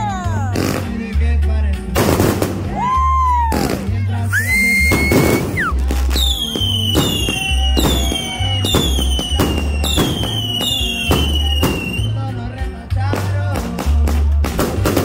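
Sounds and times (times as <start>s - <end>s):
firework volley pops: 1.9s - 12.2s, 13.0s - 15.0s
falling firework whistle: 4.3s - 12.2s.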